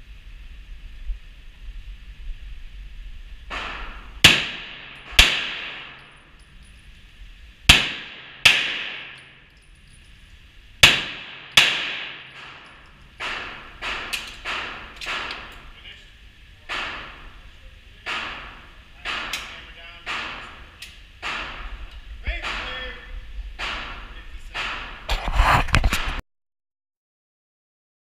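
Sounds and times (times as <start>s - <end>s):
pistol shots indoors: 3.5s - 6.2s, 7.7s - 9.6s, 10.8s - 15.7s, 16.6s - 17.4s, 18.0s - 22.7s, 23.5s - 25.1s.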